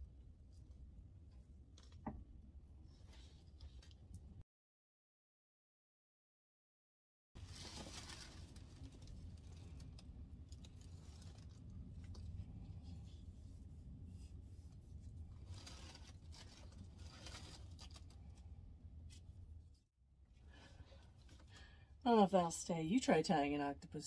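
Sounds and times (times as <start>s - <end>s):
tissue paper and fabric rustling: 7.4s - 13.5s, 14.1s - 18.4s
steady low hum: 7.4s - 22.8s.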